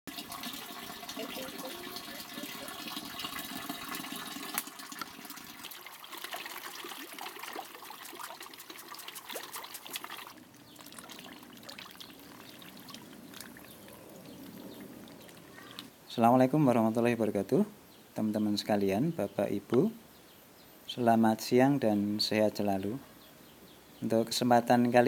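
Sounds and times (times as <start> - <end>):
water pouring into plastic drum: 0.1 - 15.8
small water splashes: 0.1 - 15.9.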